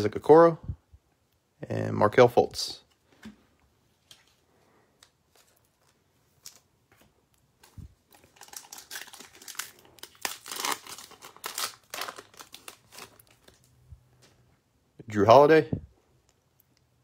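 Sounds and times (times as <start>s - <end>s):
foil pack crinkling and tearing: 7.7s - 13.7s.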